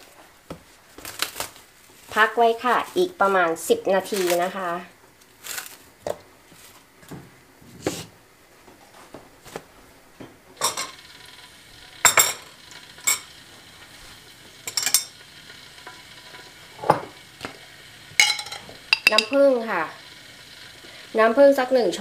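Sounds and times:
plastic wrap rustling: 0.0 - 7.8, 8.8 - 10.0
metal spoon clinking ceramic bowl: 14.7 - 15.2, 18.2 - 19.4
bowl set down on stone countertop: 16.8 - 17.2.

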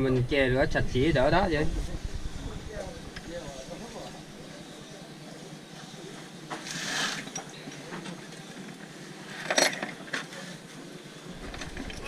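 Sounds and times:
metal parts clinking in plastic bucket: 9.4 - 10.2.

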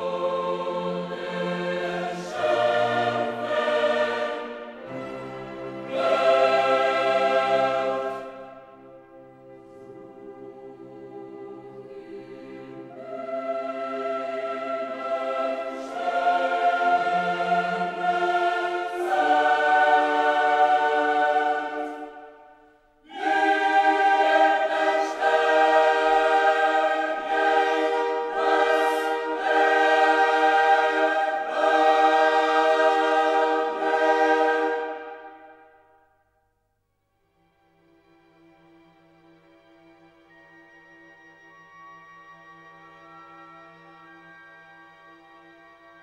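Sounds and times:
choir singing long held chords: 0.0 - 36.1.

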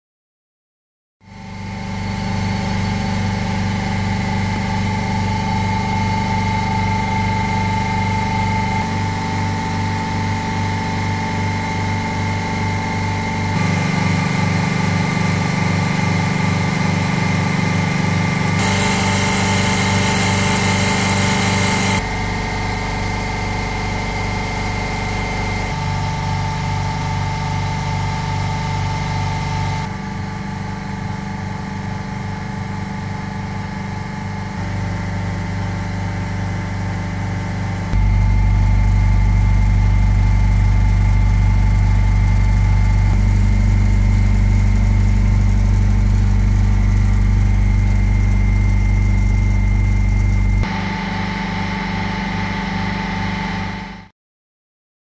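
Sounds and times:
compressors humming: 13.5 - 17.5, 18.2 - 22.3.

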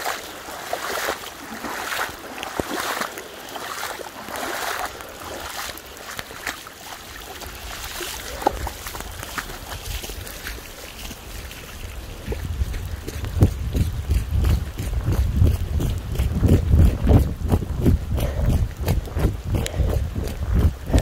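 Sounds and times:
feet splashing through water: 0.0 - 21.0
flowing water rushing: 0.0 - 21.0.

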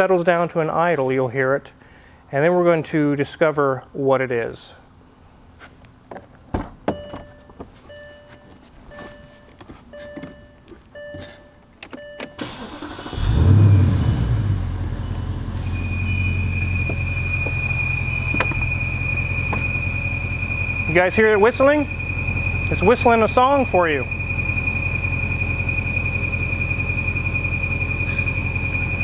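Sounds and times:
car warning chimes: 6.9 - 29.0
car engine starting and idling: 11.8 - 29.0
high-pitched whistle: 15.0 - 29.0.

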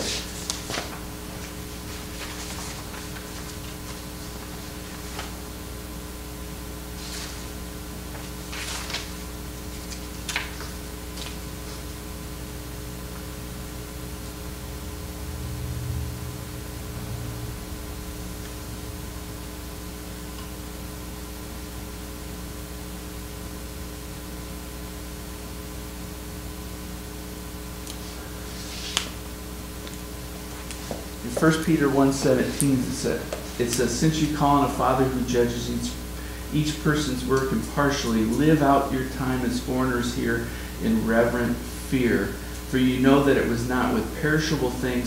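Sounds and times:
paper rustling: 0.0 - 5.4, 7.0 - 12.0, 28.0 - 29.2
electrical hum and hiss: 0.0 - 45.0.

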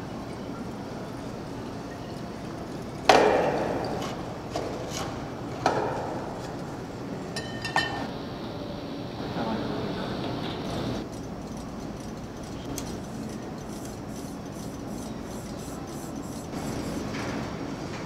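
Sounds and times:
steady background hiss: 5.2 - 11.0
glassy clinks: 7.4 - 8.1.

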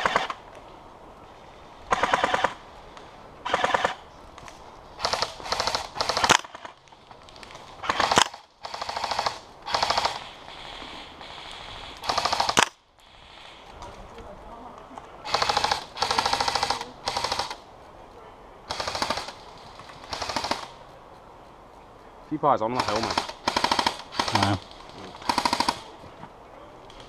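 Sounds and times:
airsoft gun automatic bursts: 0.0 - 0.4, 1.9 - 2.6, 3.5 - 4.0, 5.0 - 6.7, 7.8 - 11.4, 12.0 - 12.8, 15.3 - 17.6, 18.7 - 20.8, 22.7 - 25.9.

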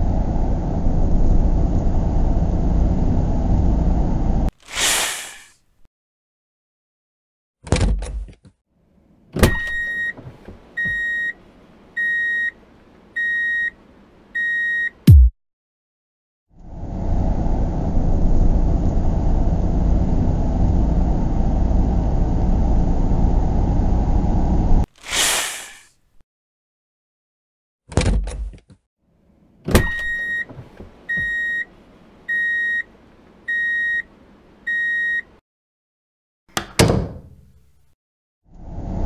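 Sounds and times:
engine rumble: 0.0 - 4.5.

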